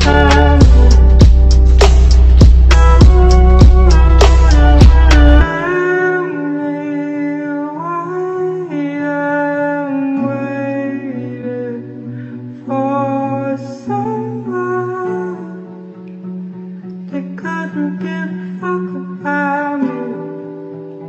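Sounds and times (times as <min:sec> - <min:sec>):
slow background music: 0:00.0 - 0:21.0.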